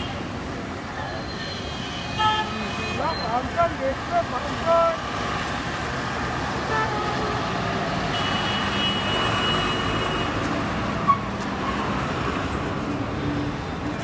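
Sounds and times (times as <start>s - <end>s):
buses and cars driving past: 0.0s - 14.0s.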